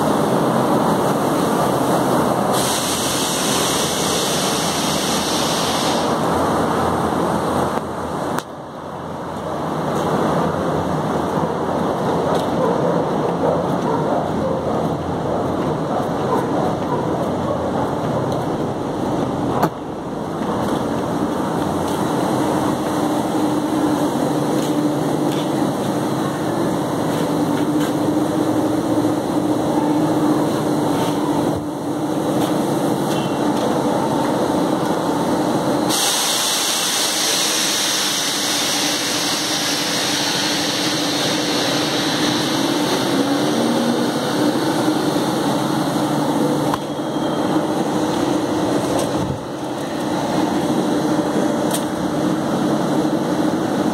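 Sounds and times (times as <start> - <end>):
loud hiss: 2.4 - 6.5, 35.8 - 45.5.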